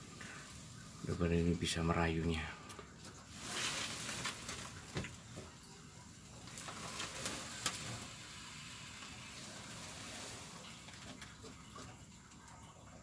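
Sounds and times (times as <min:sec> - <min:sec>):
paper rustling and crackling: 0:03.0 - 0:05.6, 0:06.4 - 0:08.2.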